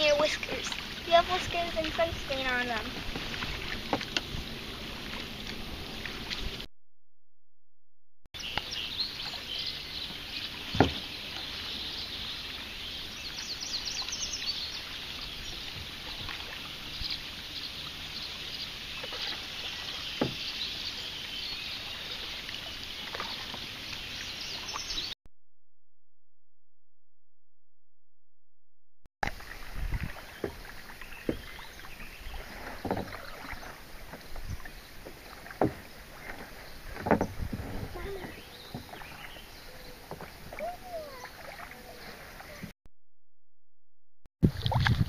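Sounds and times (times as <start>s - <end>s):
small birds chirping and singing: 8.4s - 25.2s, 35.8s - 42.7s.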